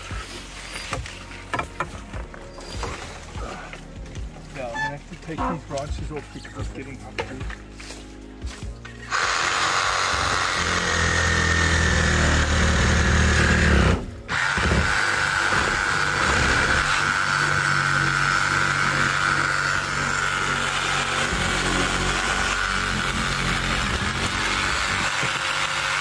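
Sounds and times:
chainsaw cutting branches: 9.0 - 26.0.

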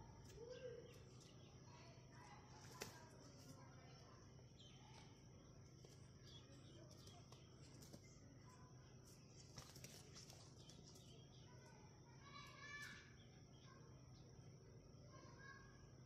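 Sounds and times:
hens scuffling: 0.0 - 3.8, 4.4 - 13.0
wing flapping: 2.4 - 3.6, 9.1 - 11.2.

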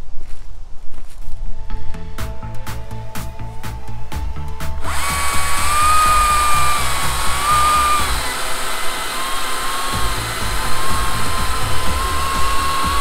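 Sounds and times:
chainsaw cutting log: 4.8 - 13.0.

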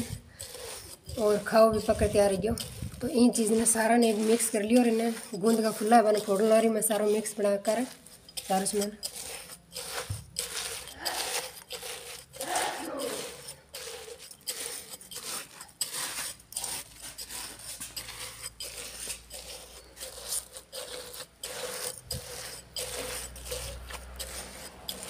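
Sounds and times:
hands crunching crisp food: 7.9 - 25.0.

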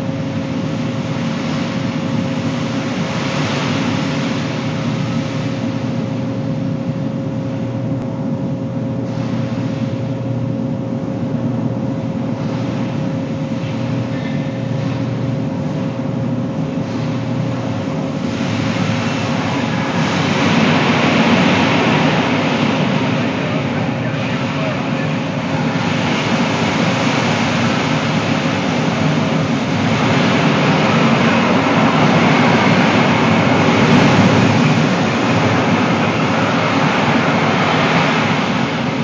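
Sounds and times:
diesel truck engine under load: 12.3 - 39.0.

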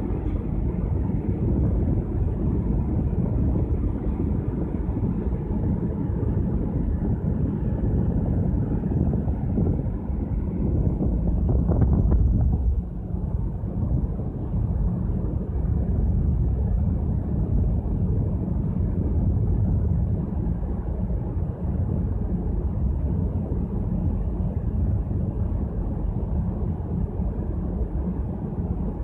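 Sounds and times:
ship running noise: 0.0 - 29.0
wind on microphone: 0.0 - 29.0.

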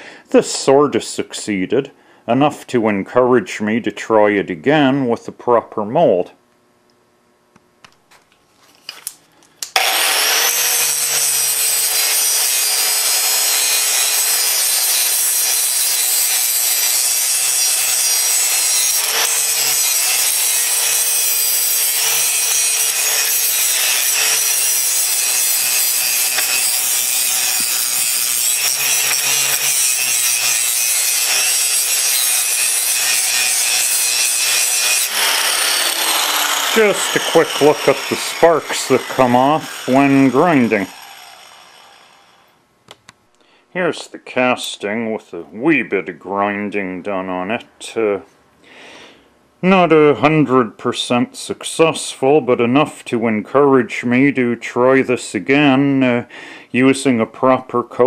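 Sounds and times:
angle grinder grinding steel: 9.7 - 42.6.

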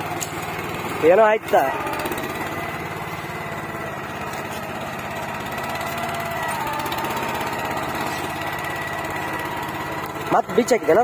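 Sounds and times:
small tractor engine running: 0.0 - 11.0.

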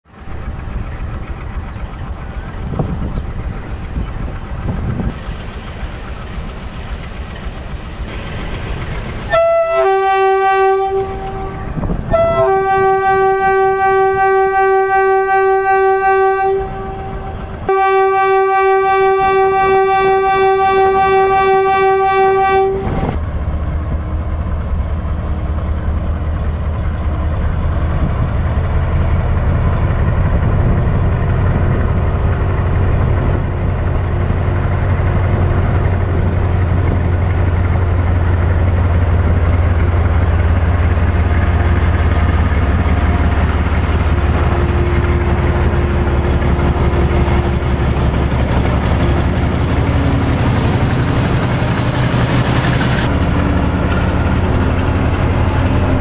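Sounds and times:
diesel engine deep rumble: 0.0 - 56.0
locomotive horn: 9.3 - 23.2.

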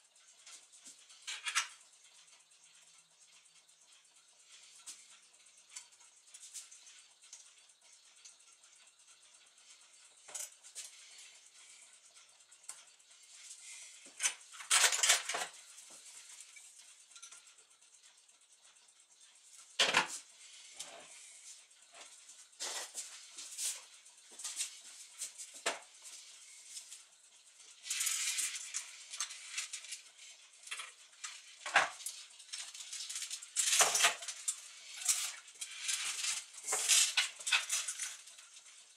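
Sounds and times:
metallic clicks and clinks: 0.4 - 1.8, 10.1 - 12.0, 13.5 - 17.6, 27.6 - 38.7
metal parts clattering: 14.2 - 15.5, 32.5 - 34.4, 35.0 - 38.2.

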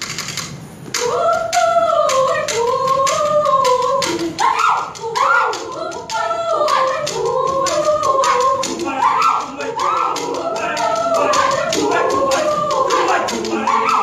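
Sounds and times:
choir singing in harmony: 0.9 - 14.0.

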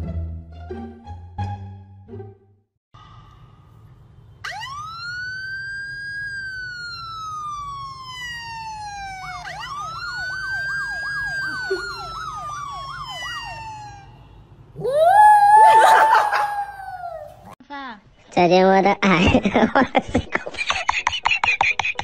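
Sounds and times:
siren wailing: 4.4 - 17.5
siren yelp tone: 4.4 - 17.5.

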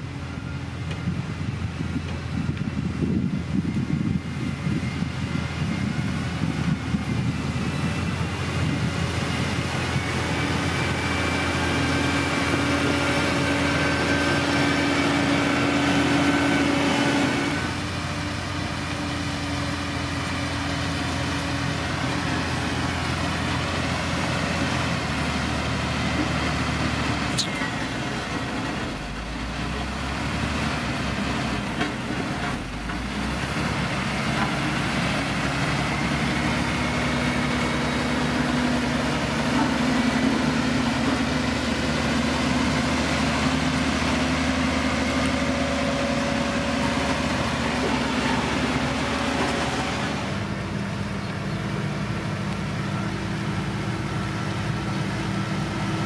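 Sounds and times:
heavy diesel machinery running: 0.0 - 56.0.

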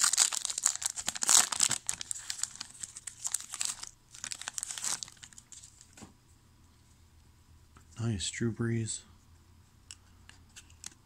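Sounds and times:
wrapper crinkling and tearing: 0.0 - 5.9.

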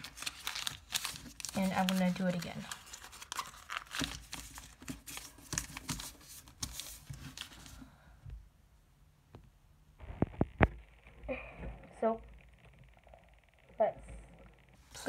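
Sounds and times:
paper crinkling and rustling: 0.0 - 7.8.

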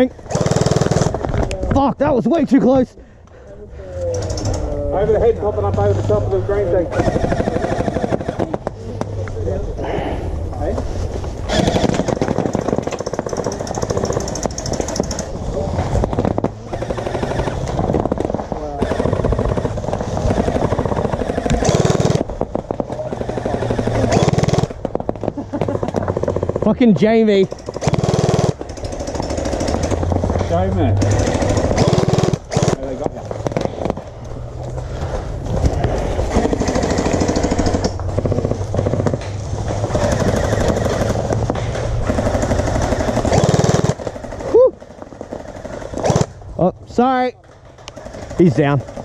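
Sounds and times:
gel blasters firing bursts: 6.9 - 8.6, 11.5 - 15.1, 16.0 - 17.9, 18.8 - 22.3, 23.1 - 24.8, 27.7 - 29.9, 31.0 - 33.9, 42.1 - 44.0.

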